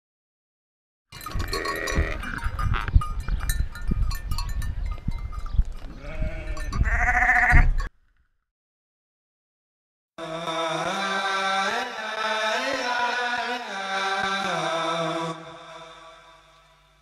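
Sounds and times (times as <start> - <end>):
sheep bleating: 1.3 - 2.9, 5.9 - 7.8.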